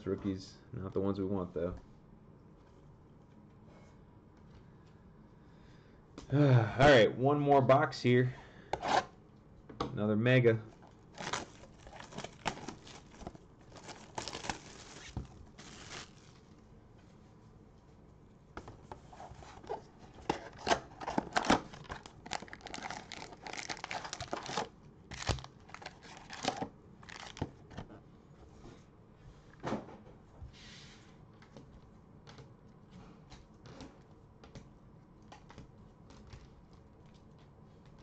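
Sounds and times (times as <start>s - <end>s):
packs knocking: 10.8s - 16.3s, 21.1s - 27.5s
cardboard tearing: 11.2s - 16.4s, 20.6s - 27.4s.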